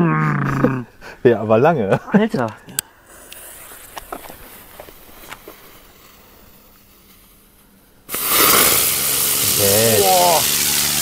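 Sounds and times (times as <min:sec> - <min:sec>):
firework hissing: 0:03.0 - 0:11.0.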